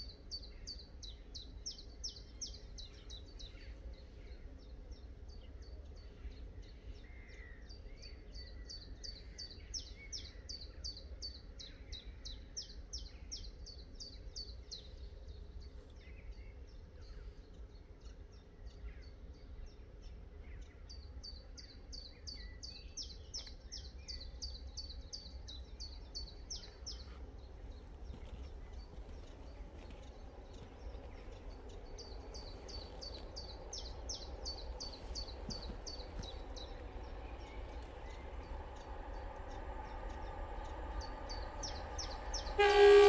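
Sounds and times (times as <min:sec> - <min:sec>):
faint low rumble: 0:13.0 - 0:42.7.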